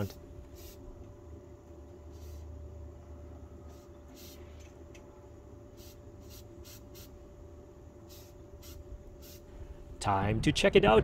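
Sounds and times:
low steady rumble: 0.0 - 11.0
aerosol can spray hisses: 0.5 - 0.8, 2.1 - 2.4, 3.7 - 4.4, 5.8 - 7.2, 8.1 - 9.5.

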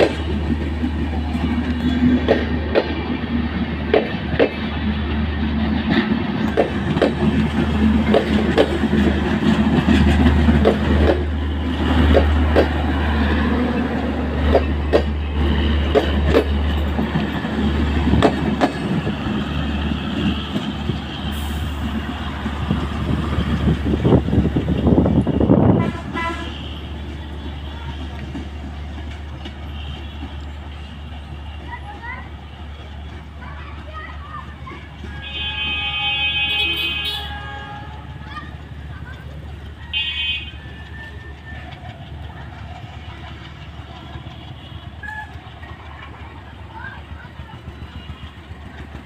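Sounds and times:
train wheels clattering on rails: 0.0 - 49.0.

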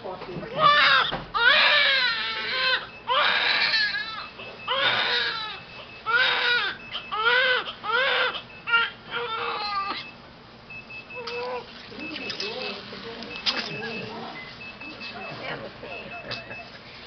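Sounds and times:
newborn baby crying: 0.6 - 10.1, 11.2 - 11.7.

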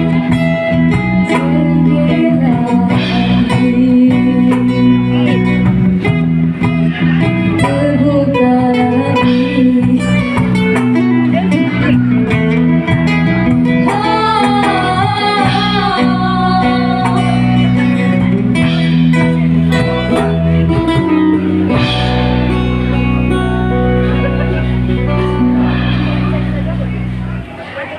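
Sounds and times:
acoustic guitar playing: 0.0 - 27.9
keyboard playing: 0.0 - 27.9
woman singing: 1.2 - 5.4, 7.6 - 10.8, 13.6 - 18.2.

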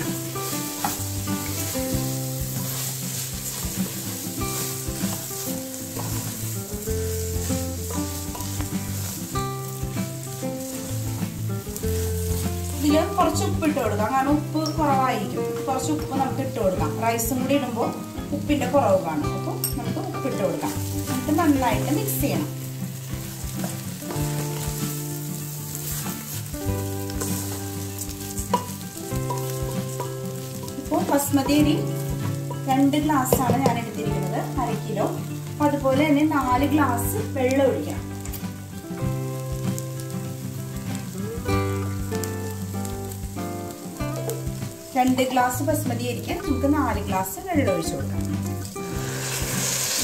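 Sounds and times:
background music with held notes: 0.0 - 50.0
rice sizzling in a pot: 0.0 - 50.0
spoon stirring and scraping: 2.5 - 9.2, 23.2 - 32.8.

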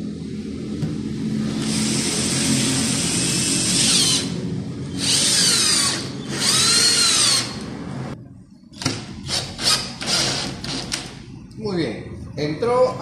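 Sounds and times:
cordless drill driving a screw: 1.6 - 4.4, 5.0 - 7.6, 9.2 - 11.0.

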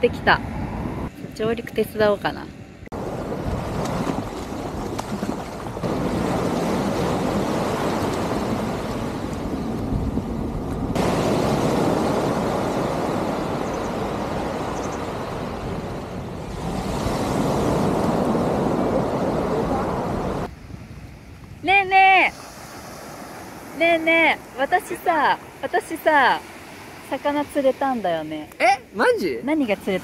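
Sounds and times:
wind buffeting microphone: 2.9 - 23.3
surf washing onto beach: 3.0 - 27.3.

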